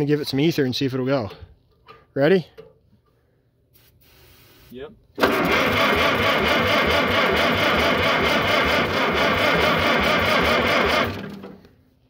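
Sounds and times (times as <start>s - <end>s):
tractor engine cranking: 5.2s - 11.7s.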